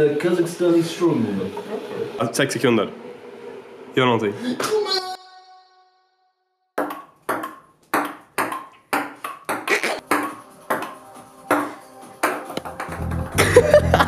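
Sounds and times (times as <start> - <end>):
table tennis ball hits: 6.8 - 13.4.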